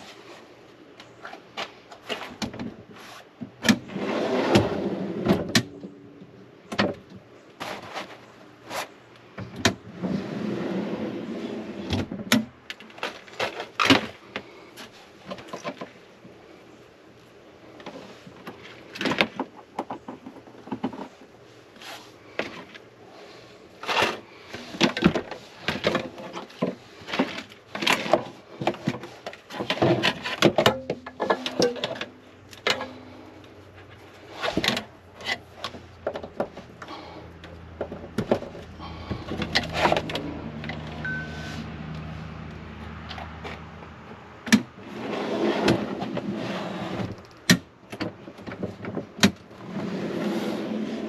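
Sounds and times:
steady low hum: 0:03.9 - 0:12.3.

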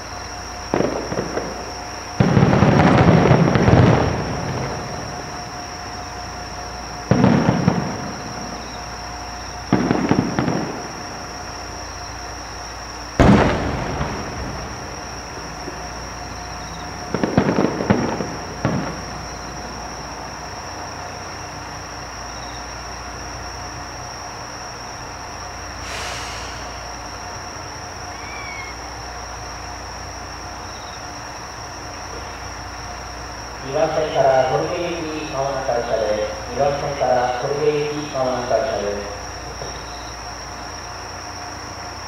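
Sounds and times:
firework shells booming: 0:00.0 - 0:21.4, 0:24.6 - 0:30.1
firework crackling: 0:00.0 - 0:22.1, 0:22.7 - 0:30.7.

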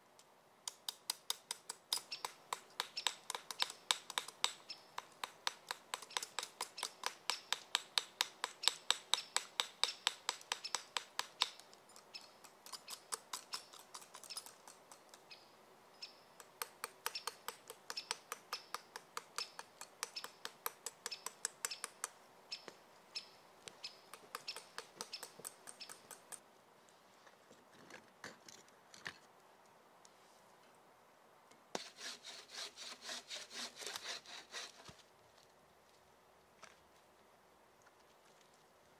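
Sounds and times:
hand tool scraping strokes: 0:31.7 - 0:35.1.

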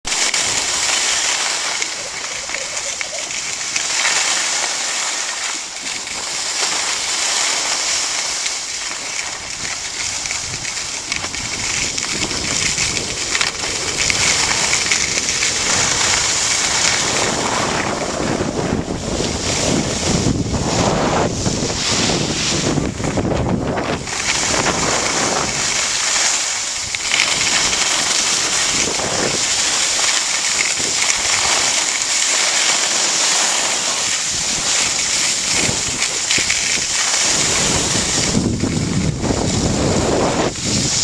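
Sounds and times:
skis scraping over snow: 0:00.0 - 0:41.0
wind buffeting microphone: 0:09.2 - 0:32.2, 0:33.6 - 0:41.0.

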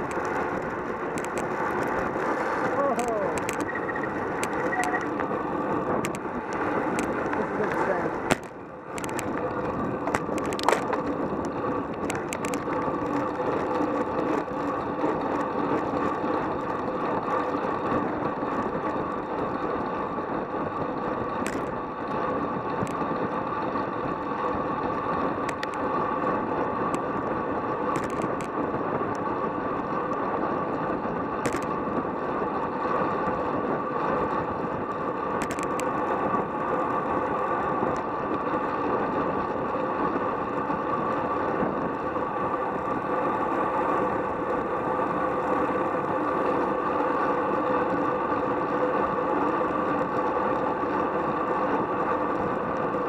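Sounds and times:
bike clicks and rattles: 0:00.0 - 0:53.0
tyre noise on asphalt: 0:00.0 - 0:53.0
wind rush over microphone: 0:00.0 - 0:53.0.

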